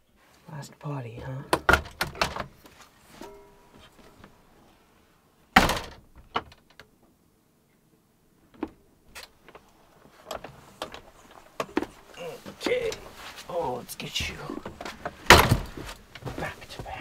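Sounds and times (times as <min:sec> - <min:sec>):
door shutting with a thud: 0:05.6 - 0:06.6, 0:15.3 - 0:15.9.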